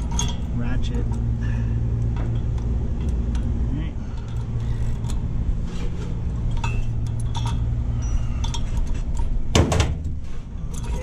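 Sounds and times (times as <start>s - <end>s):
light metal clinks: 0.0s - 1.3s, 6.4s - 9.4s
steady low hum: 0.0s - 11.0s.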